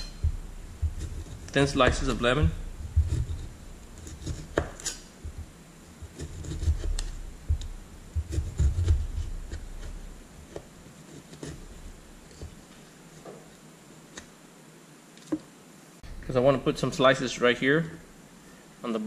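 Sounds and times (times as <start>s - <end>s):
low dull thumps: 0.0s - 10.7s
knife slicing on cutting board: 3.0s - 5.1s, 6.0s - 12.6s.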